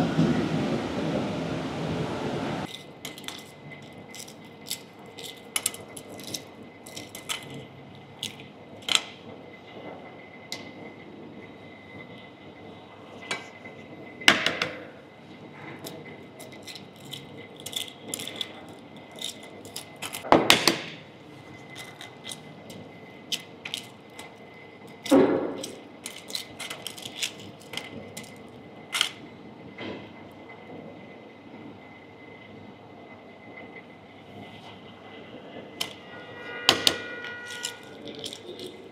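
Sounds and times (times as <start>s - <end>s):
eggshells crackling: 2.7s - 7.6s, 16.4s - 20.3s, 21.6s - 29.2s, 37.5s - 38.8s
loud eggshell cracks: 16.4s - 20.3s, 24.9s - 29.2s, 37.5s - 38.8s.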